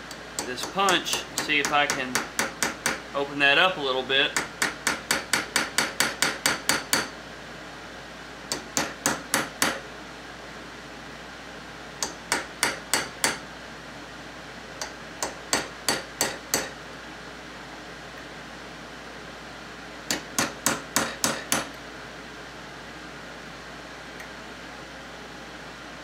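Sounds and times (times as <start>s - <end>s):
hammer tapping steel punch: 0.0s - 3.0s, 4.3s - 7.2s, 8.5s - 9.8s, 12.0s - 13.4s, 14.8s - 16.8s, 20.1s - 21.8s.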